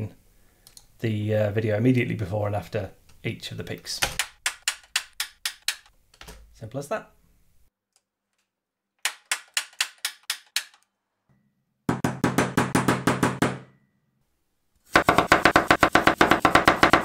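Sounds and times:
hammer knocking on wooden block: 0:11.9 - 0:13.6, 0:15.0 - 0:17.0
knife chopping carrot on board: 0:15.0 - 0:17.0.

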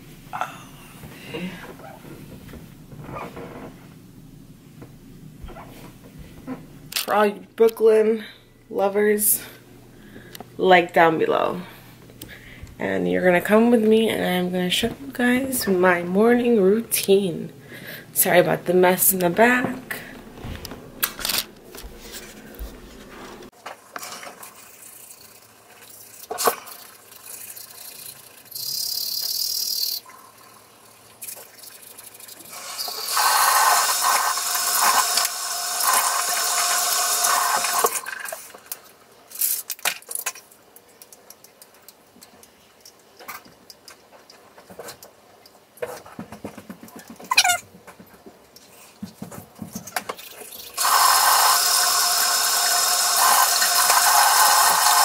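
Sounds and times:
tap water running: 0:18.2 - 0:38.8, 0:50.0 - 0:55.0.

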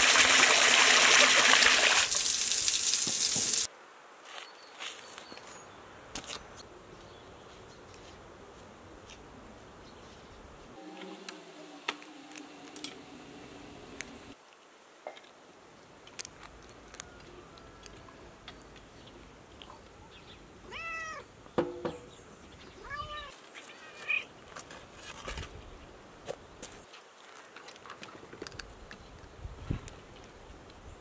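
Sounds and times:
cat meowing: 0:20.7 - 0:21.3, 0:22.8 - 0:24.3.

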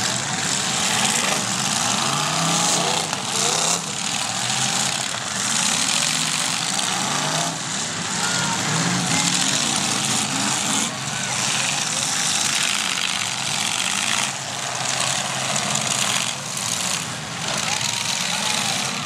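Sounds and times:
car engines revving: 0:00.0 - 0:19.0.

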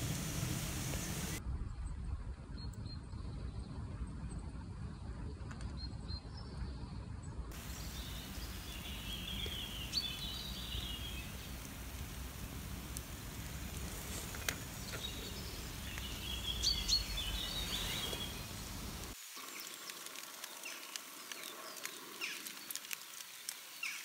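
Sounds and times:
faint bird chirps: 0:07.6 - 0:12.4, 0:13.7 - 0:19.8.

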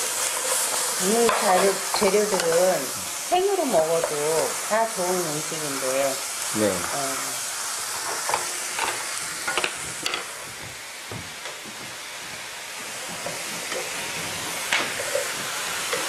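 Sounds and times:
spatula scraping pan: 0:00.0 - 0:04.6, 0:12.9 - 0:16.0
vegetables sizzling in pan: 0:00.0 - 0:16.0.

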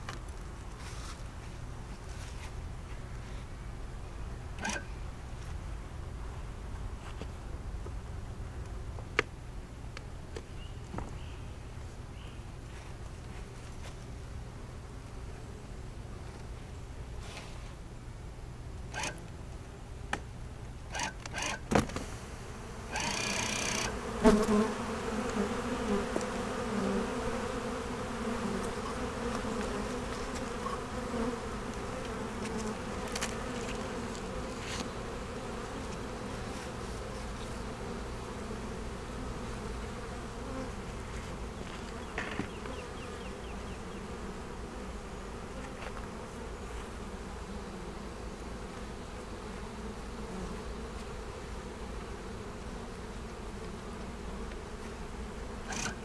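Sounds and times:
bees buzzing: 0:21.0 - 0:56.0.

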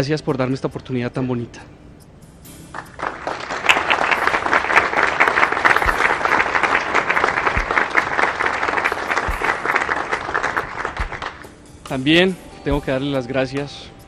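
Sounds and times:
audience applauding: 0:02.7 - 0:11.5.

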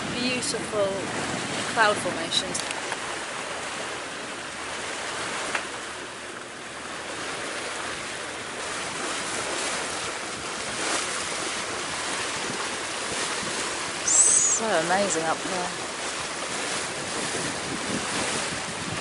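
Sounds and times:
wind on microphone: 0:00.0 - 0:02.8, 0:08.7 - 0:19.0
water rushing along hull: 0:00.0 - 0:19.0.

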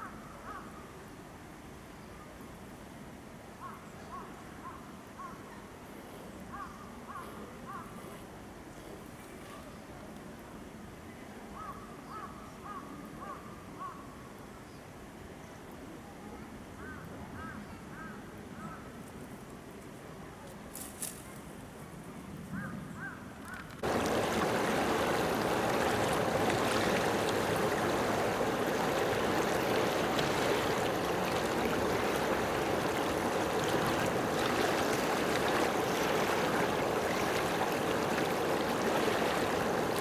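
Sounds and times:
rushing water: 0:23.8 - 0:40.0.

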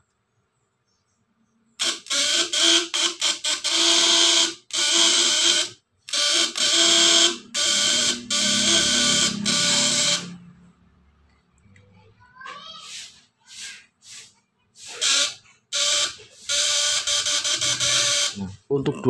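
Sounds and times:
inverter buzzing loudly: 0:01.8 - 0:11.1, 0:14.9 - 0:18.5.

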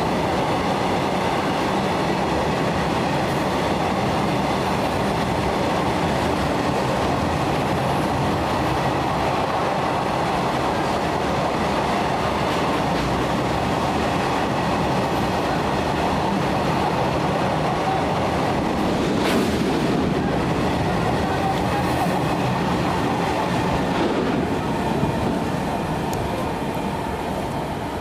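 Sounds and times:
train wheels rumbling on rails: 0:00.0 - 0:28.0.

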